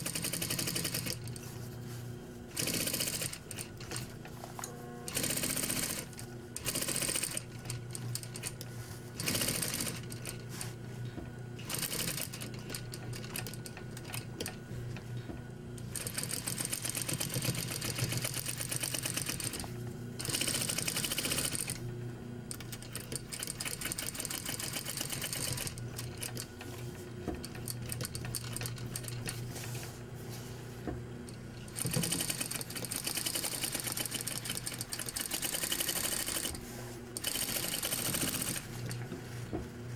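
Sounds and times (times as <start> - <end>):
sewing machine stitching: 0.0 - 1.4, 2.5 - 4.2, 5.1 - 8.6, 9.2 - 10.7, 11.6 - 14.6, 15.8 - 21.8, 22.5 - 26.7, 31.6 - 36.6, 37.2 - 39.0.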